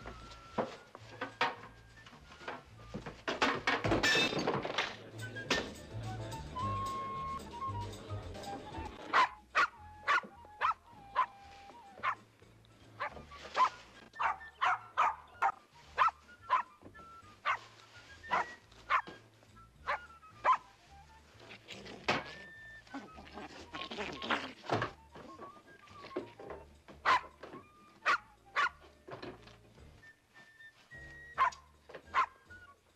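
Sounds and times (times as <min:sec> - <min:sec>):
small dog yapping: 0:09.1 - 0:11.3, 0:13.0 - 0:16.7, 0:28.0 - 0:28.8.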